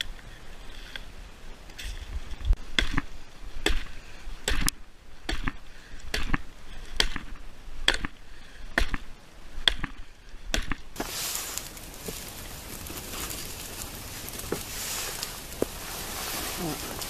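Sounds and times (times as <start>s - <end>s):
hatchet chopping wood: 2.8s - 8.2s, 8.8s - 9.0s, 9.6s - 10.8s.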